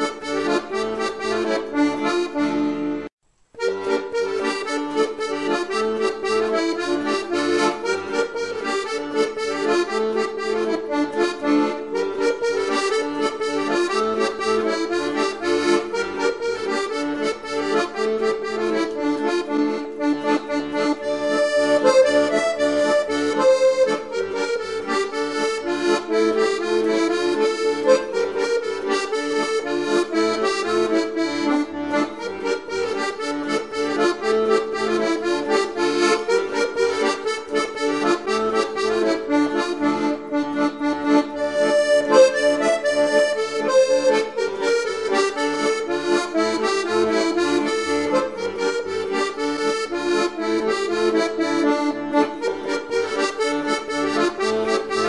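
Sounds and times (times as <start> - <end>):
instrumental music with pulsing bass: 3.7 - 55.0.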